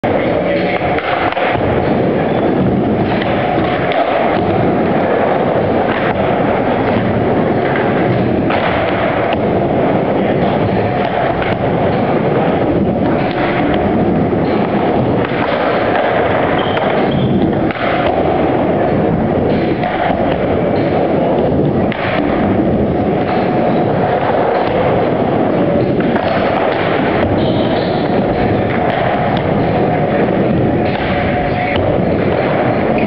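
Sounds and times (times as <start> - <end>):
skateboard knocking on coping: 0.0 - 33.0
skateboard wheels rumbling on ramp: 0.0 - 33.0.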